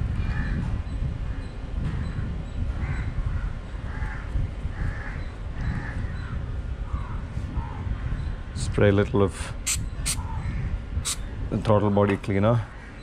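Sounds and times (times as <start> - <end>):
bird cawing: 2.8 - 8.2, 12.6 - 13.0.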